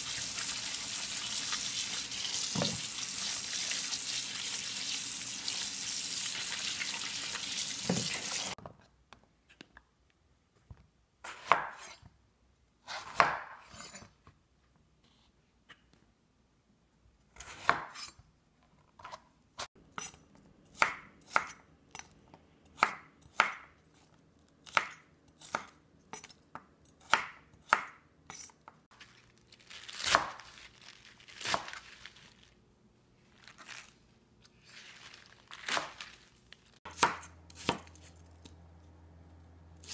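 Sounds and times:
knife chopping on wooden board: 11.3 - 12.0, 12.9 - 13.7, 17.4 - 18.1, 22.8 - 23.7, 27.0 - 28.5, 36.9 - 38.0.

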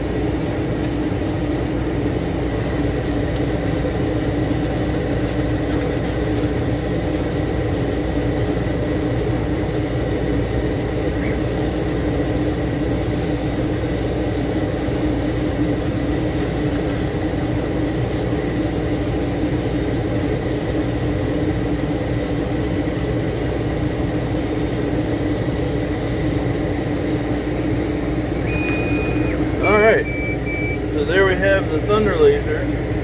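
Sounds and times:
laser cutter humming: 0.0 - 33.0
faint high whine: 28.4 - 31.9.

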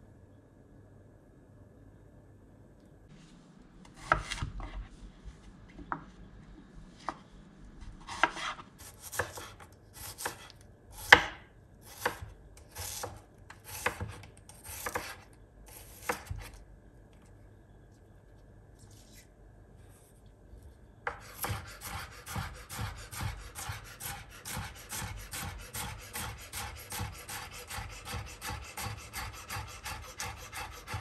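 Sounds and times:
knife slicing onion on board: 3.9 - 4.8, 8.0 - 16.6, 21.0 - 31.0.

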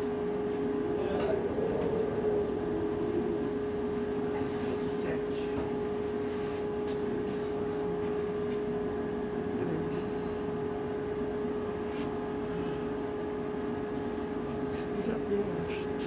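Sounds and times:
steady hum: 0.0 - 16.0
strong storm wind rushing: 0.8 - 5.3.

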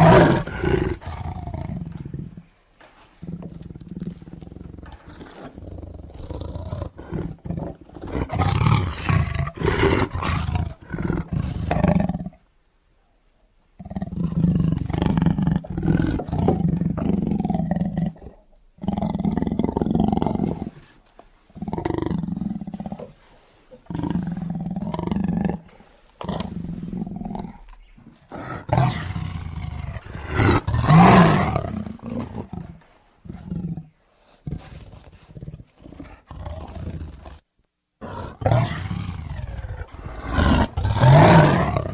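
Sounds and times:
tiger roaring: 0.0 - 2.4, 3.3 - 12.4, 28.3 - 37.4, 38.0 - 41.9.

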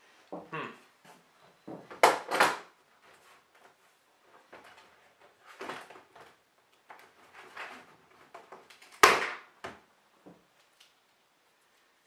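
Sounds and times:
parts scraping and rattling in case: 1.9 - 9.0.

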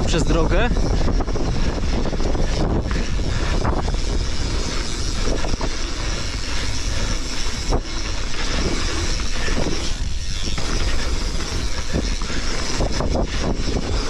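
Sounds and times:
bike tyres rumbling over dirt: 0.0 - 14.0
wind noise on microphone: 0.0 - 14.0
bike knocking over bumps: 7.3 - 14.0.

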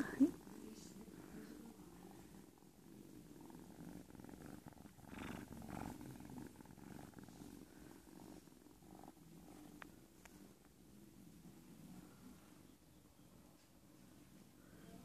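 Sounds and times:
cat purring: 0.0 - 15.0.

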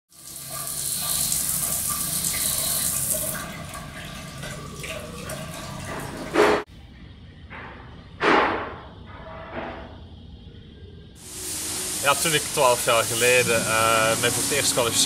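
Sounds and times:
shower water splashing on tiles: 0.1 - 6.7, 11.2 - 15.0.

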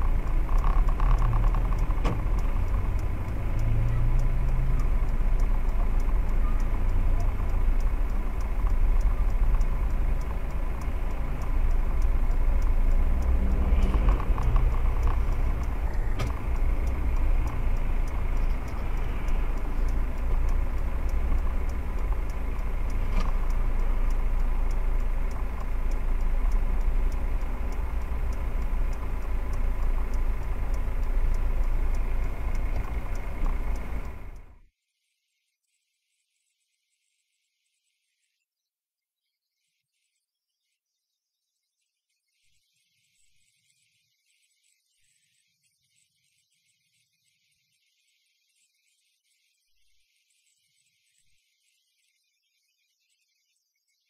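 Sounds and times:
car engine and road hum: 0.0 - 34.6
faint regular ticking: 0.0 - 34.7
sharp click: 0.4 - 4.4, 13.4 - 18.8, 21.1 - 23.6.

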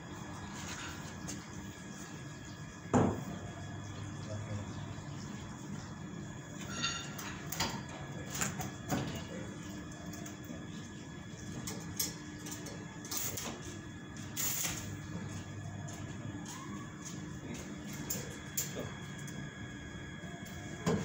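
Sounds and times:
welding arc crackling: 12.0 - 15.0.

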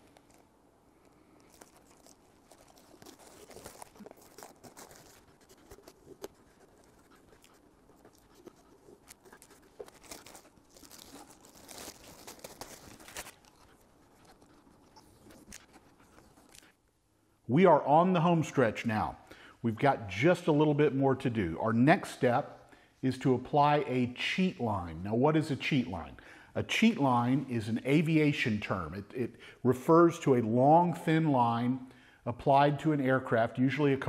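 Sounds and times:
tape and plastic crinkling and tearing: 0.0 - 16.8
small clicks and rustles: 0.0 - 17.0.

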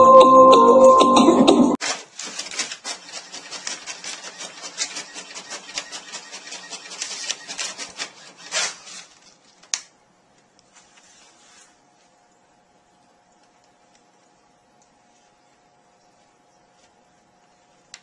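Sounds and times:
paper rustling: 1.8 - 9.7.

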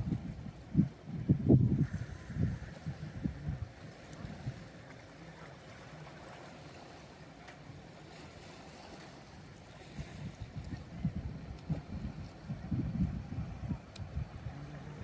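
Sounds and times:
wind buffeting microphone: 0.0 - 4.8, 9.8 - 15.0
hiss of calm sea: 1.6 - 11.1.

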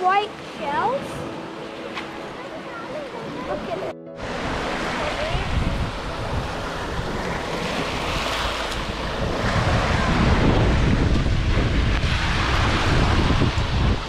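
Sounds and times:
waves breaking on beach: 0.0 - 14.0
wind buffeting microphone: 3.1 - 14.0.

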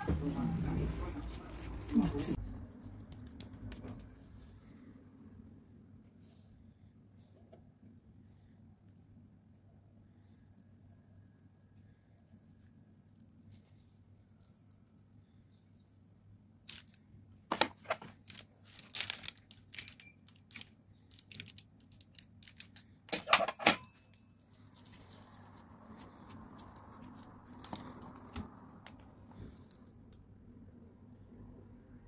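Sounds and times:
baking paper crinkling and crackling: 0.0 - 4.1, 11.9 - 23.2, 24.0 - 30.1
dough rustling: 0.0 - 4.6, 24.0 - 29.9.

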